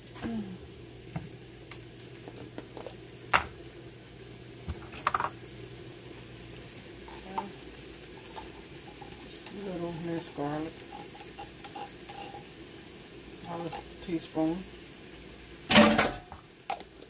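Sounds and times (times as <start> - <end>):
kitchen utensils clinking: 4.8 - 5.4, 8.2 - 12.5, 13.5 - 14.0, 15.7 - 16.4.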